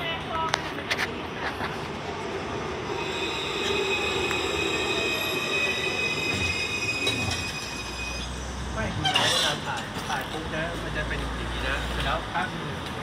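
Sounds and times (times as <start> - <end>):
rumble of moving tram: 0.0 - 13.0
tram wheels squealing: 2.8 - 10.4.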